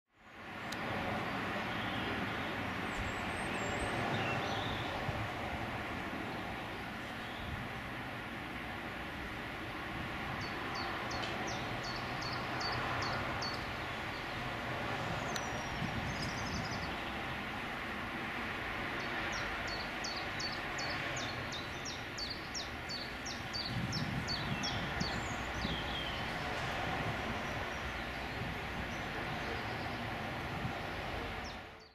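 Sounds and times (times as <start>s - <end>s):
steady outdoor rumble: 0.1s - 31.9s
small bird singing: 1.7s - 5.0s, 10.4s - 14.4s, 15.2s - 17.2s, 19.0s - 26.5s, 31.4s - 31.9s.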